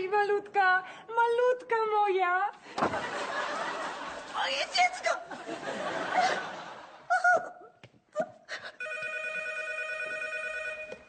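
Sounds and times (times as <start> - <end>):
laughter: 2.8 - 7.6
woman crying wail: 7.1 - 8.8
telephone ringing: 8.8 - 11.0.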